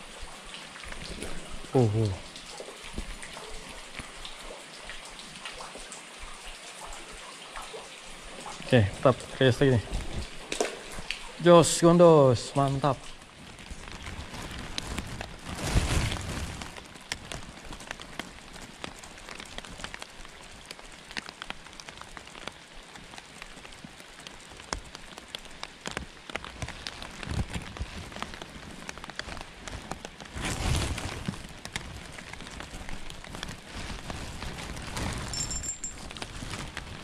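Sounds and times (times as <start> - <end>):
steady rain falling: 0.0 - 37.0
sharp raindrop ticks: 8.4 - 37.0.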